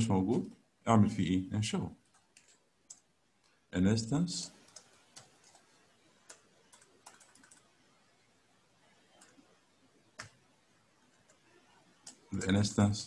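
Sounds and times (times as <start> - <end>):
computer keyboard keystrokes: 2.1 - 3.1, 4.6 - 7.7, 10.2 - 10.4, 12.0 - 12.5.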